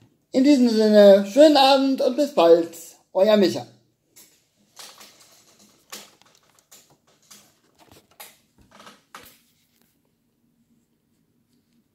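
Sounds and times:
smartphone handling rustles and knocks: 4.2 - 10.0.

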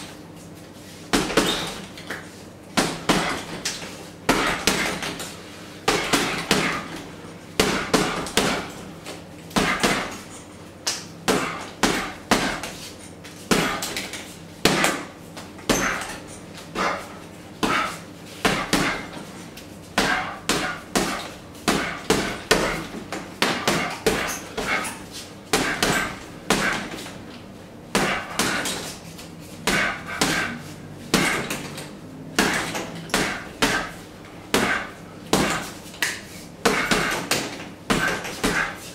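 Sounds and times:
punching bag thuds: 1.1 - 1.9, 2.8 - 3.6, 4.3 - 5.3, 5.9 - 8.8, 9.6 - 10.2, 11.3 - 12.8, 13.5 - 15.1, 15.7 - 16.2, 16.8 - 19.2, 20.0 - 24.9, 25.5 - 27.1, 27.9 - 29.0, 29.6 - 31.7, 32.3 - 35.8, 36.6 - 38.8.

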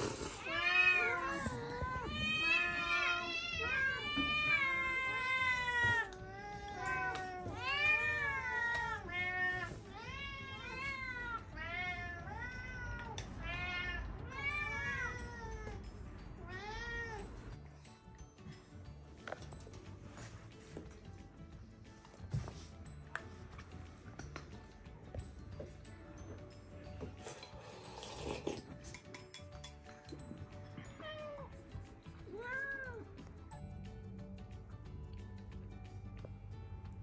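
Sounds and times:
cat meowing: 0.4 - 15.8, 32.3 - 33.1.

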